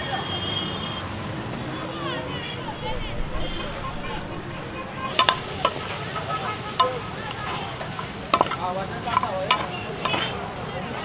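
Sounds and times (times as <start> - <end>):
spoon clinking and scraping pan: 5.1 - 10.8
meat sizzling in a frying pan: 5.1 - 11.0.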